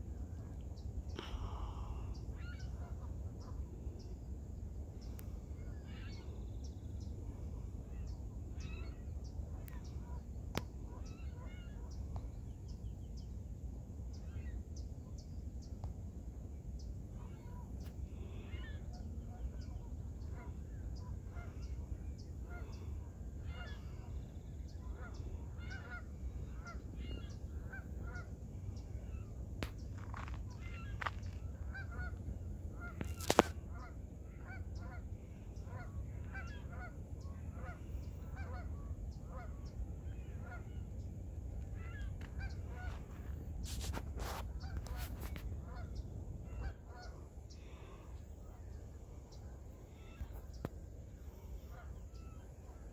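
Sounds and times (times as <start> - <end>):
geese honking: 18.5 - 40.8, 41.7 - 50.7, 51.4 - 52.8.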